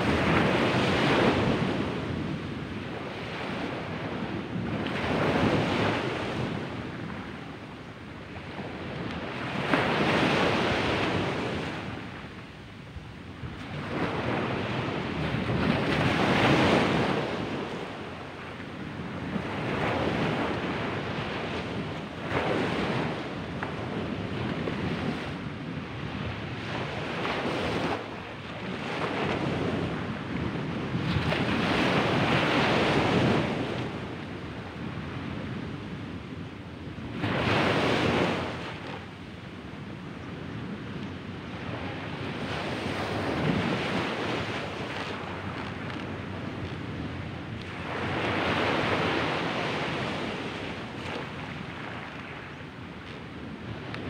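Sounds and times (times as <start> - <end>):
small waves breaking on sand: 41.5 - 54.0.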